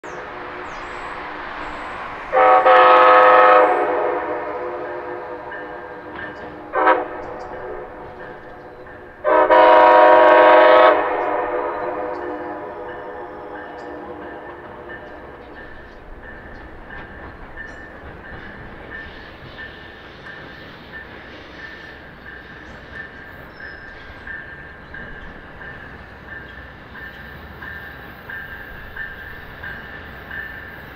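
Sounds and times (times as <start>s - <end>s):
train rumbling: 0.0s - 30.9s
locomotive air horn blasts: 2.3s - 8.2s, 9.2s - 13.4s
locomotive bell ringing: 2.4s - 30.9s.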